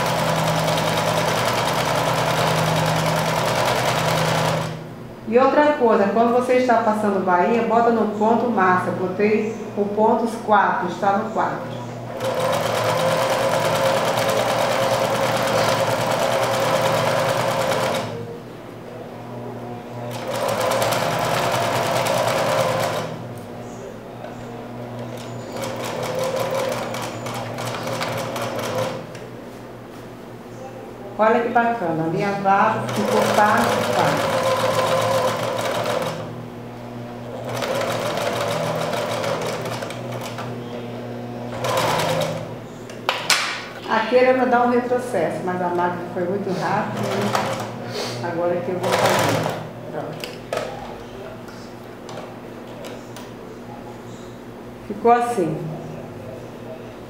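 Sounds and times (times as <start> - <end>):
sewing machine stitching: 0.0 - 4.8, 12.1 - 18.2, 20.1 - 23.2, 24.9 - 29.2, 32.8 - 36.3, 37.3 - 40.5, 41.5 - 42.5, 47.0 - 47.8, 48.8 - 49.7.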